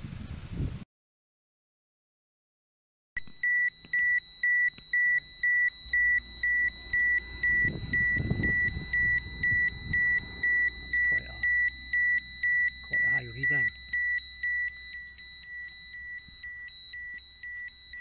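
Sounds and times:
high repeating alarm beeps: 3.2 - 18.0
low rumble: 6.6 - 11.1.

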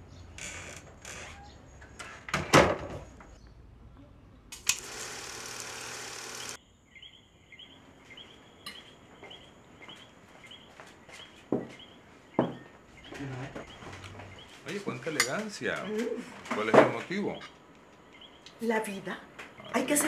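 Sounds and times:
projector motor whirring: 4.6 - 6.6.

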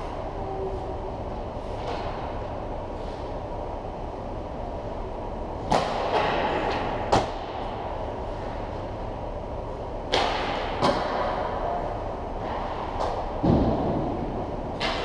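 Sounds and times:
ice rink background noise: 0.0 - 15.0
hockey sticks striking pucks: 5.6 - 7.8, 10.1 - 11.8, 12.4 - 14.2, 14.8 - 15.0.

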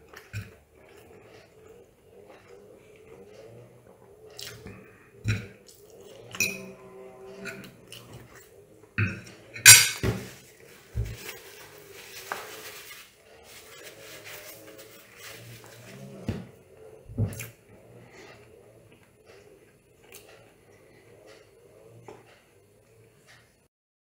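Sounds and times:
fork clinking on ceramic plate: 9.0 - 10.1.

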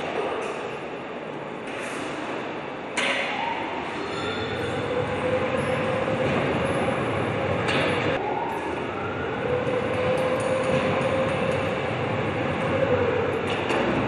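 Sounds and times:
steady electric machine drone: 3.9 - 14.0.

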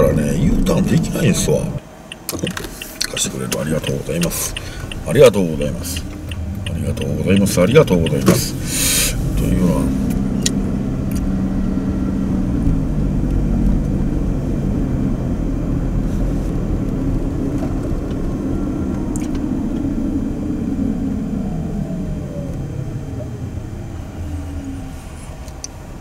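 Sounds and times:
car engine and road noise: 0.0 - 26.0.

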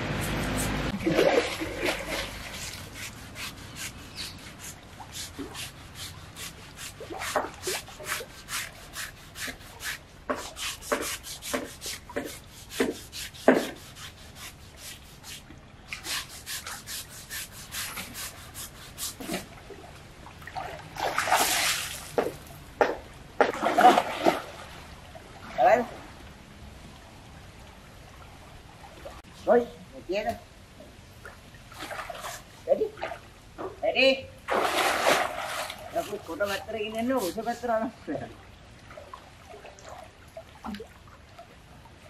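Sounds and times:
water splash: 0.0 - 3.5, 19.2 - 26.2, 34.4 - 36.2
coarse scrubber rasping strokes: 1.8 - 19.5, 35.4 - 37.6.

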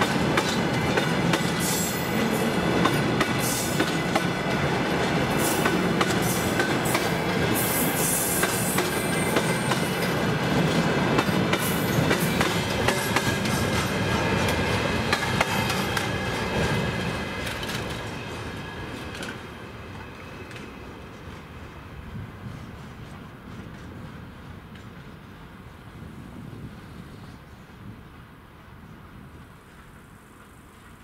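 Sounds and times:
wheels clacking over rail joints: 0.0 - 19.5
train rolling rumble: 0.0 - 31.0.

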